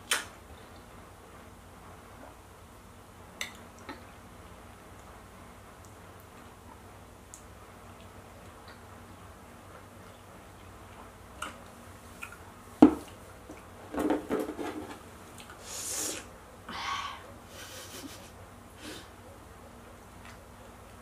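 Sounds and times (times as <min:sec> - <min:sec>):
crackly chewing and smacking: 0:03.4 - 0:09.0, 0:09.6 - 0:13.8, 0:19.8 - 0:21.0.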